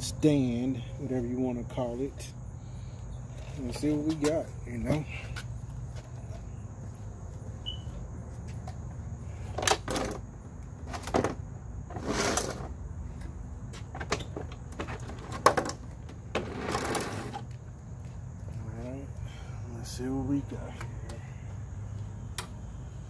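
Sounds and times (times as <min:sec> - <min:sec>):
lawn mower knocking and scraping: 0:13.9 - 0:17.5.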